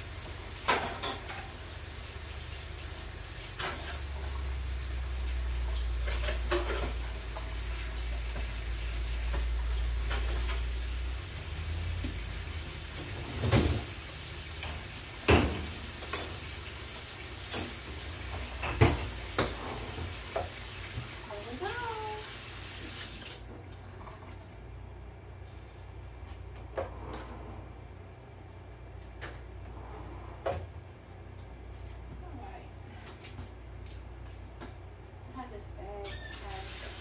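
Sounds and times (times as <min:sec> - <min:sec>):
running kitchen tap: 0:00.0 - 0:24.5, 0:36.1 - 0:37.0
dishes and utensils clinking: 0:00.7 - 0:01.5, 0:14.6 - 0:16.7, 0:17.4 - 0:19.8.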